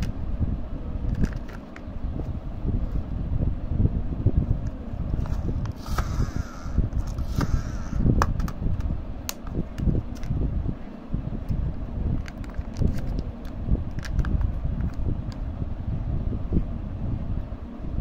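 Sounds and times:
plastic capsules and foil trays handled: 1.0 - 1.9, 12.2 - 15.4.

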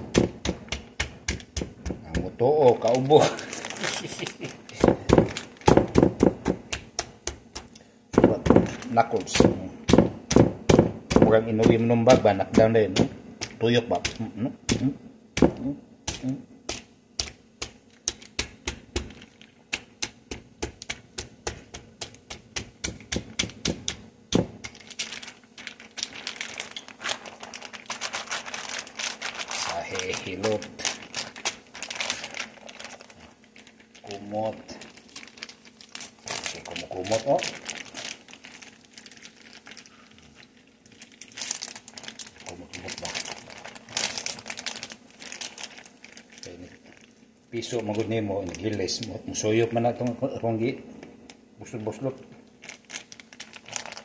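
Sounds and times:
plastic bag crinkling: 2.2 - 7.0, 7.7 - 10.5, 17.4 - 20.0, 22.9 - 54.0.

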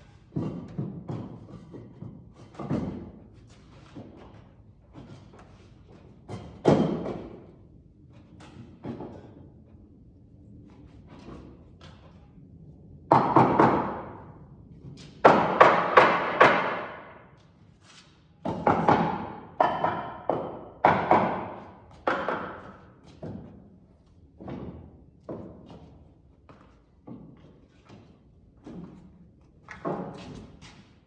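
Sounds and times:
nails hammered into wood: 15.2 - 17.1, 18.5 - 22.7.

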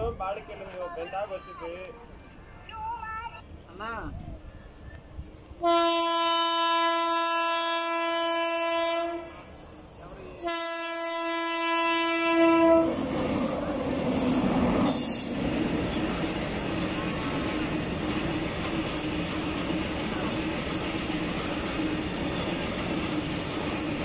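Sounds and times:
locomotive horn blasts: 5.6 - 9.4, 10.4 - 13.0
train wheels rolling on rails: 9.1 - 24.0.

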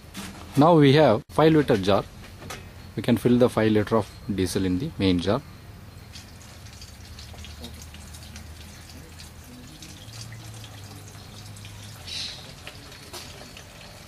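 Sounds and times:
low steady hum: 1.2 - 14.0
liquid trickling and splashing: 6.0 - 14.0.

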